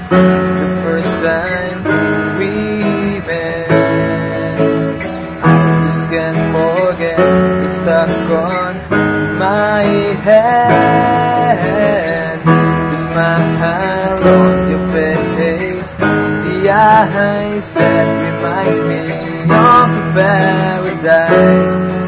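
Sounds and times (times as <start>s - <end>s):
strummed acoustic guitar: 0.0s - 22.0s.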